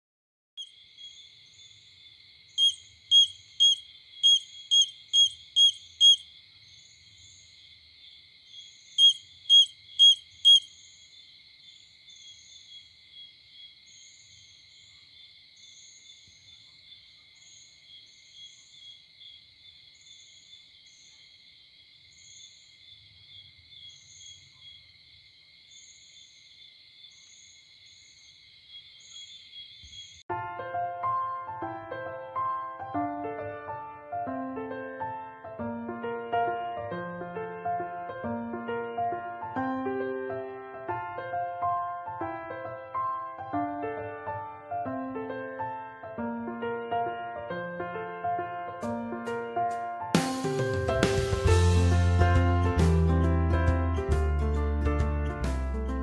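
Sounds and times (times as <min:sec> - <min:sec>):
cricket chirping: 0:00.6 - 0:30.3.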